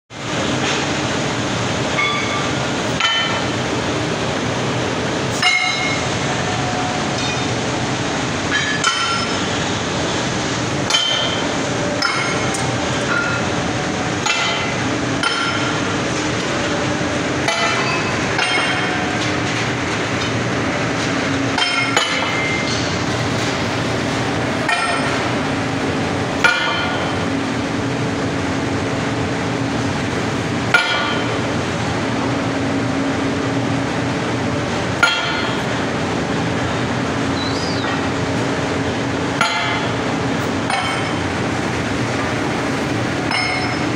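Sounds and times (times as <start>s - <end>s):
machinery hum: 0.1s - 43.9s
steel billets clanking: 43.3s - 43.9s.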